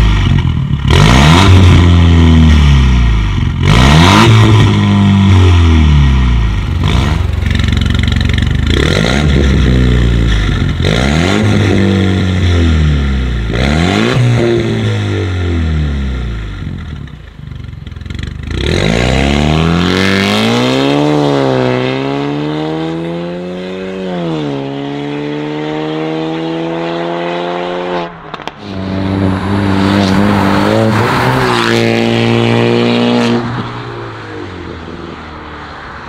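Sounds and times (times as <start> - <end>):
car engine accelerating hard: 18.3 - 36.0.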